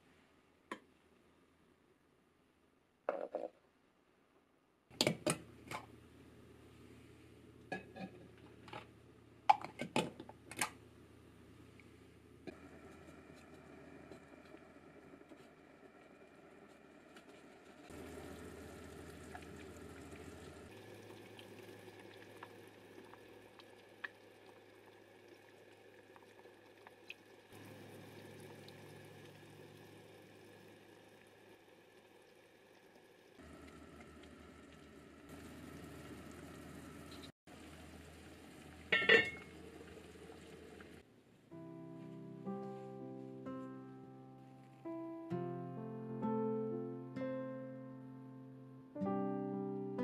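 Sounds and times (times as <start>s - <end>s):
broth simmering and bubbling: 5.1s - 41.1s
iron lid clanking onto pot: 38.9s - 39.5s.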